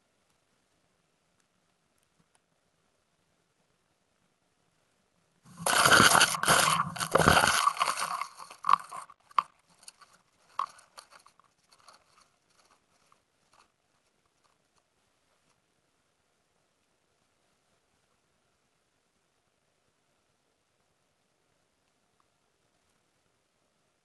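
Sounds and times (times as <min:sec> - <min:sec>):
crackles and ticks of twigs: 0:00.0 - 0:18.4, 0:20.6 - 0:23.6
camera crunching through branches: 0:05.5 - 0:13.6.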